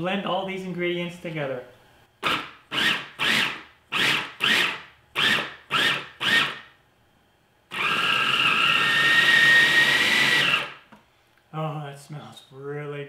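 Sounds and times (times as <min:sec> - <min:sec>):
food processor motor whining: 0:02.2 - 0:06.6, 0:07.7 - 0:10.9.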